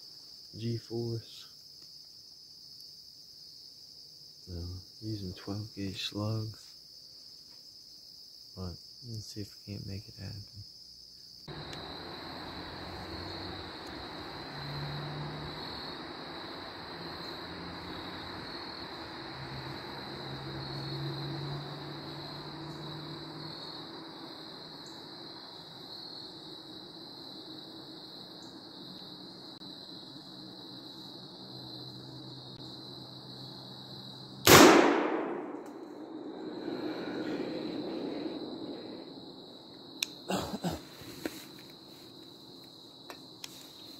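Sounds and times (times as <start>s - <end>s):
background hiss: 0.0s - 43.9s
insects droning: 0.0s - 43.9s
distant engine hum: 11.5s - 43.9s
shotgun shot: 34.4s - 35.9s.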